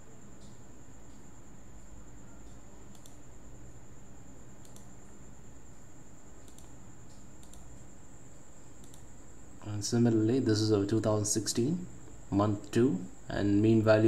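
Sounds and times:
low background hiss: 0:00.0 - 0:14.0
computer mouse clicks: 0:02.4 - 0:03.3, 0:04.6 - 0:05.1, 0:06.4 - 0:07.9, 0:08.8 - 0:09.2.

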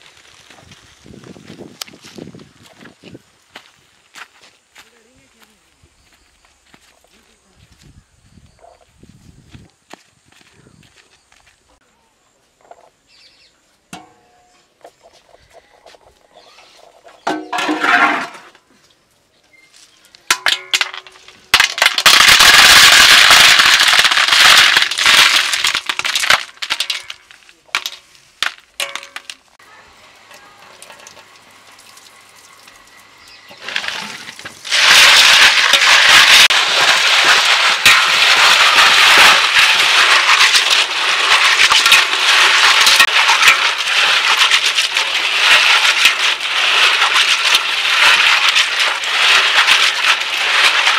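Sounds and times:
snail shells clattering: 0:20.8 - 0:29.5, 0:33.5 - 0:50.9
water pouring into metal basin: 0:30.7 - 0:50.9.

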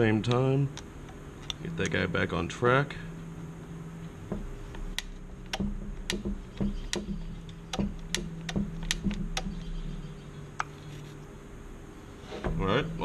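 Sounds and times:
sharp metallic clicks: 0:04.3 - 0:09.8.

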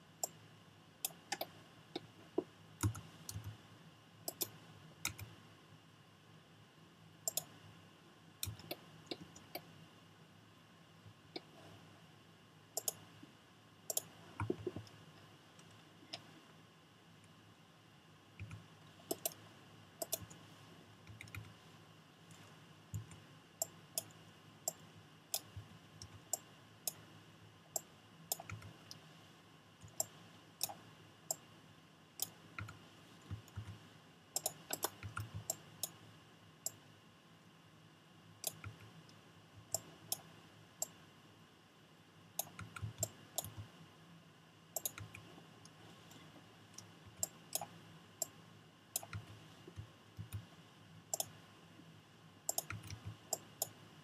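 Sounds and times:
faint steady hum: 0:00.0 - 0:54.0
mouse buttons clicking: 0:01.0 - 0:03.6, 0:04.3 - 0:05.3, 0:07.3 - 0:07.6, 0:08.4 - 0:09.7, 0:12.8 - 0:13.0, 0:13.9 - 0:15.0, 0:18.4 - 0:19.4, 0:20.0 - 0:20.4, 0:23.0 - 0:27.0, 0:27.7 - 0:29.0, 0:34.4 - 0:36.0, 0:38.4 - 0:41.0, 0:42.4 - 0:43.7, 0:44.8 - 0:48.4, 0:49.0 - 0:50.5, 0:51.1 - 0:51.4, 0:52.5 - 0:53.8.

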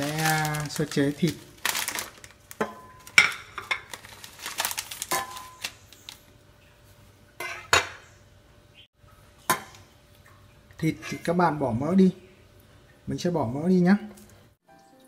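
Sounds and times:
kitchenware knocking and clinking: 0:02.6 - 0:04.0, 0:07.4 - 0:08.0.

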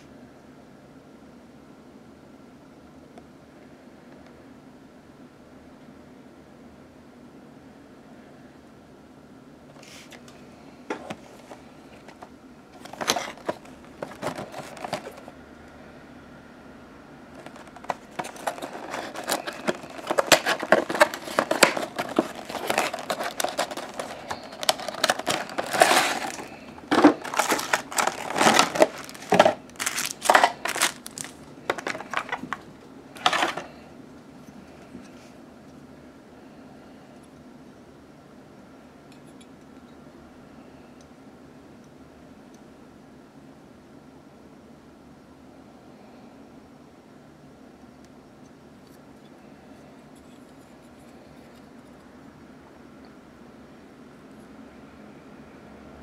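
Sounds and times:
card rustling: 0:09.8 - 0:15.3, 0:17.3 - 0:33.8
plastic wrap crinkling: 0:12.8 - 0:15.3, 0:17.3 - 0:33.8.

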